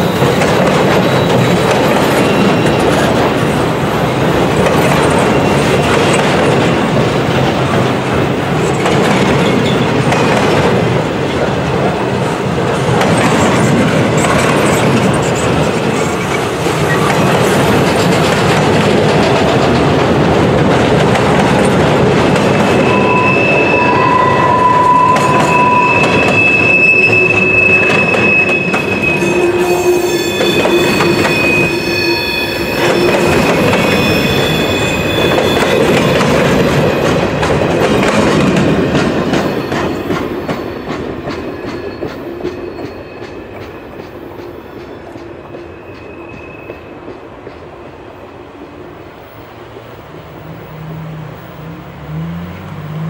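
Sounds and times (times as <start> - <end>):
wheel squeals: 0.0 - 3.2, 4.6 - 6.3, 22.4 - 37.2
train wheels clattering over rails: 0.0 - 23.6, 24.9 - 48.3.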